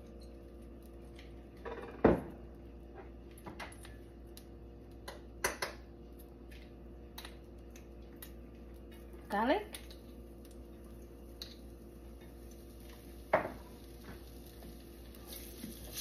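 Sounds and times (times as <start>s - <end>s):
bottle set down on countertop: 1.7s - 2.4s, 13.3s - 13.6s.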